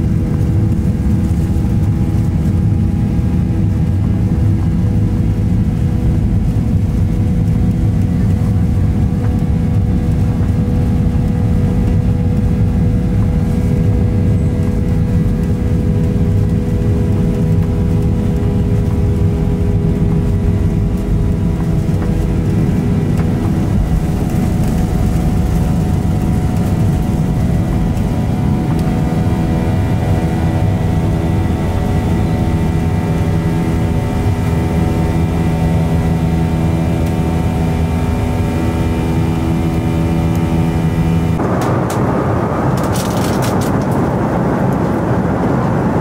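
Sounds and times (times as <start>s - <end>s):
jet engine cabin roar: 0.0s - 46.0s
steady hums: 0.0s - 46.0s.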